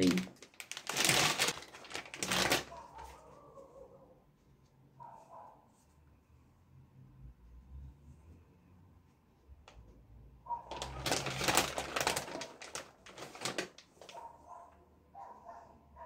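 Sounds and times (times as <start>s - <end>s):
plastic packaging crinkling: 0.0s - 3.0s, 10.7s - 14.3s.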